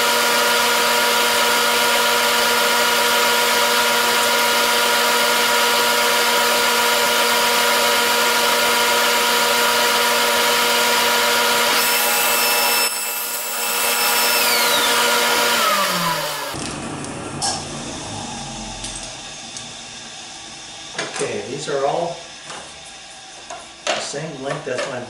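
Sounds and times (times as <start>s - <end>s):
saw cutting wood: 0.0s - 16.7s
saw blade spinning down: 0.0s - 21.0s
table saw humming: 0.0s - 24.4s.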